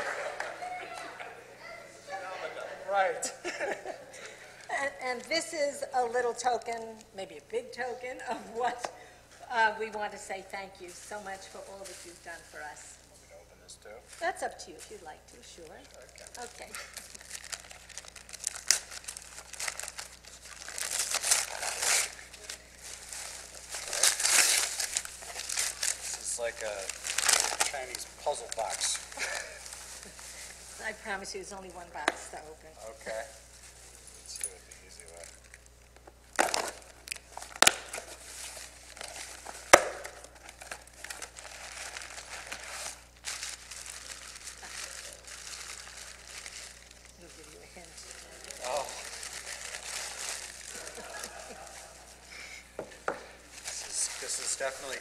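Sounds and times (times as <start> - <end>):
wrapping paper crinkling: 10.7 - 12.9, 15.0 - 31.6, 32.3 - 52.3, 53.5 - 55.0.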